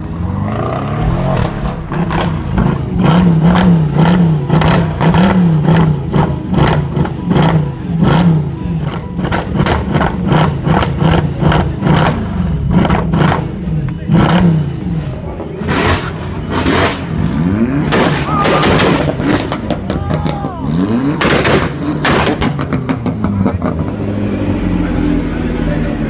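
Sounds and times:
car engine revving: 0.0 - 26.0
exhaust pops: 1.0 - 5.0.

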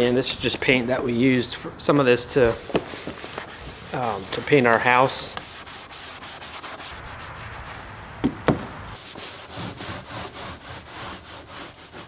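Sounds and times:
paint roller rubbing on plywood: 2.5 - 7.8, 9.0 - 12.0.

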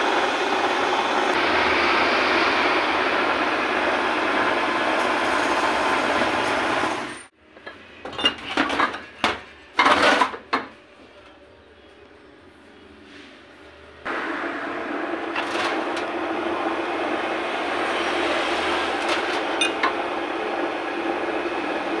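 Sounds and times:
metal lathe running: 0.0 - 7.3, 14.1 - 22.0
metal parts clattering: 8.0 - 10.6.

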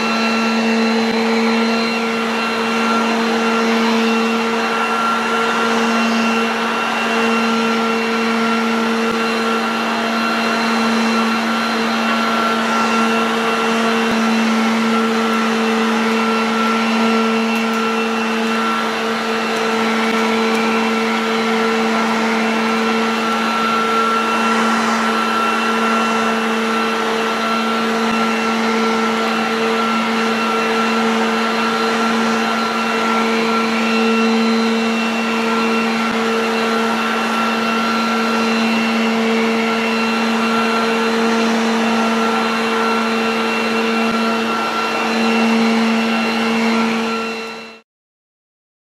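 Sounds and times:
electric garden vacuum running: 0.0 - 47.8.

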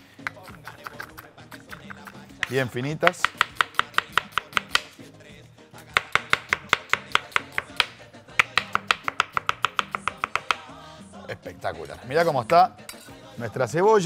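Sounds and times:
knife slicing onion on wooden board: 1.7 - 5.0, 5.9 - 10.7.

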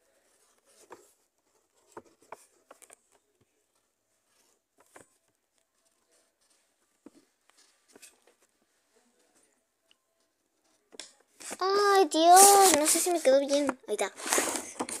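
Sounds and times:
pencil scratching on paper: 11.4 - 14.8.

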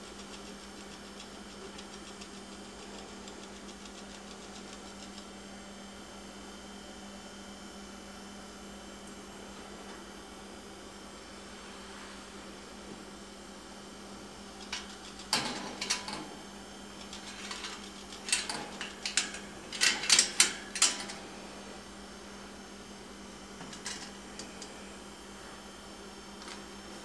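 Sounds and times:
electrical hum: 0.0 - 27.0
wire cage clinking and rattling: 14.8 - 16.3, 17.0 - 21.2.

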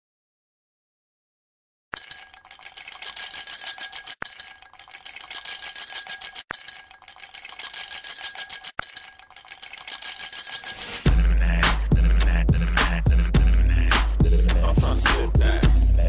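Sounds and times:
high electronic ringing: 2.0 - 11.1.

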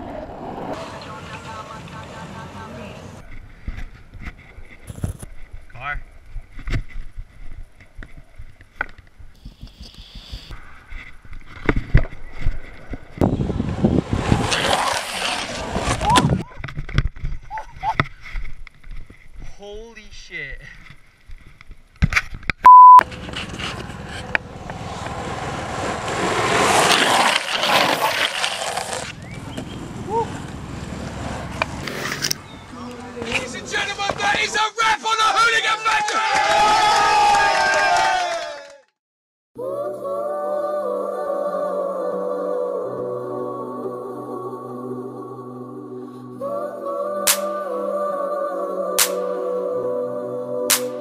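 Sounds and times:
skateboard wheels rolling on asphalt: 0.0 - 19.4, 23.1 - 34.6
test-tone beep: 22.7 - 23.0.

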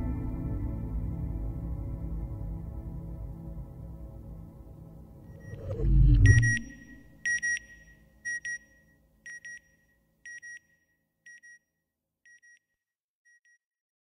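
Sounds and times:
faint low hum: 5.3 - 7.2
electronic beeps in pairs: 5.3 - 10.6.

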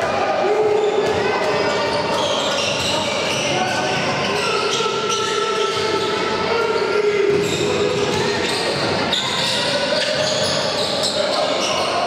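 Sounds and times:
voices echoing in hall: 0.0 - 12.0
basketball bouncing on court: 1.0 - 4.2, 7.3 - 10.6.

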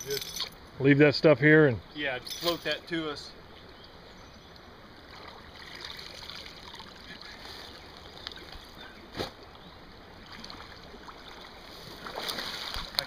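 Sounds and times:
water sloshing and splashing: 4.9 - 13.0.

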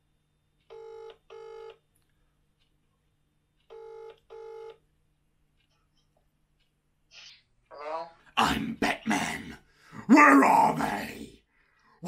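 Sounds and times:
telephone ringing tone: 0.7 - 1.8, 3.7 - 4.8.

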